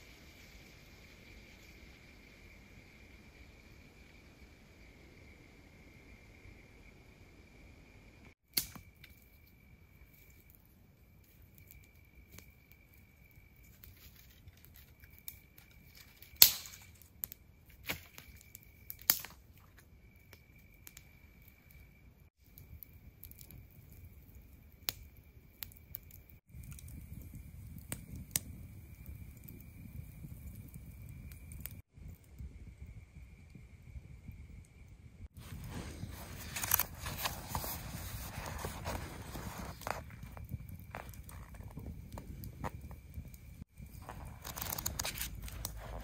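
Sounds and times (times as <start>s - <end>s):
campfire crackling and popping: 8.5s - 33.6s, 35.3s - 46.0s
high-pitched insect trill: 8.7s - 31.8s.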